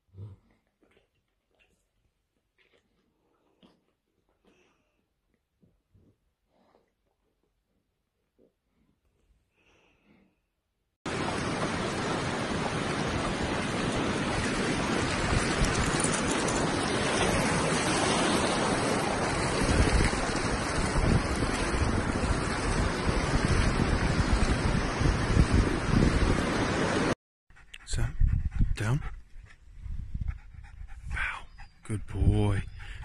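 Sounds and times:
sea surf washing in: 11.1s - 27.2s
wind blowing on microphone: 12.9s - 27.1s, 27.9s - 33.0s.

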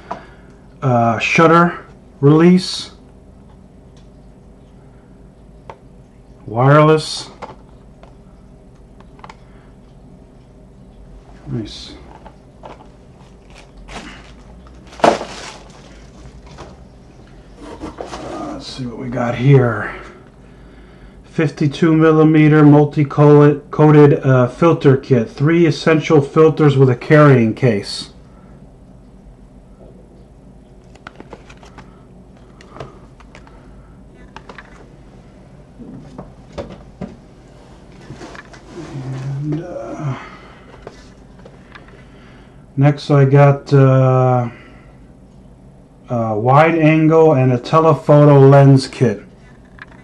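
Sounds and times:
plastic and cardboard rustling: 12.0s - 16.9s, 17.6s - 18.6s, 30.8s - 33.6s, 35.9s - 39.6s
cardboard box handling clicks and rustles: 12.1s - 16.8s.

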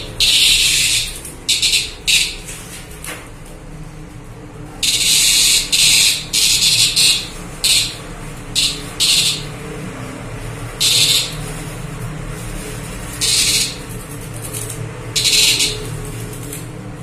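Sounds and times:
cicada buzzing: 0.0s - 2.5s, 4.8s - 9.6s, 10.8s - 11.6s, 13.1s - 14.1s, 15.1s - 16.5s.

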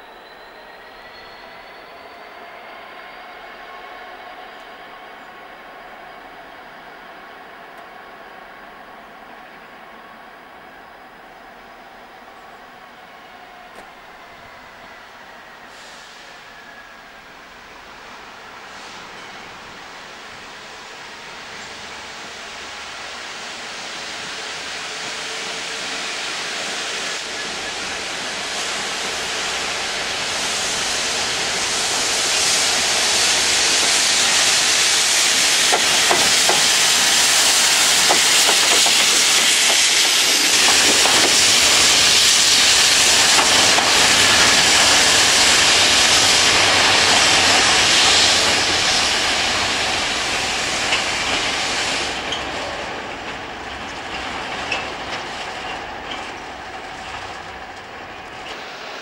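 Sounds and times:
train wheels clattering on track: 25.0s - 59.0s
high-pressure water jets hissing: 25.4s - 59.0s.

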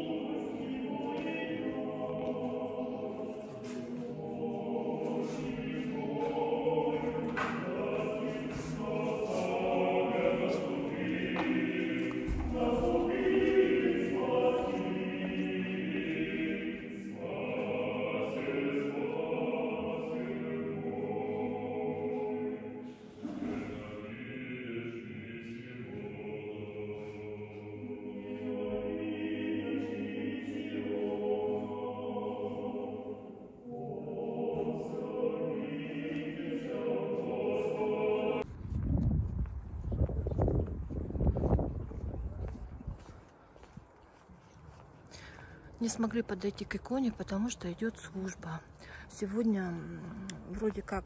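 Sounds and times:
choir chanting unaccompanied: 0.0s - 38.5s.

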